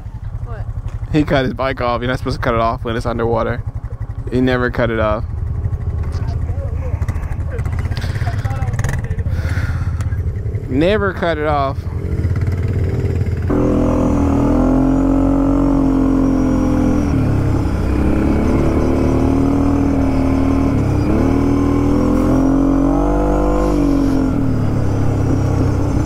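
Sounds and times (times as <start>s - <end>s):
atv engine revving: 0.0s - 26.0s.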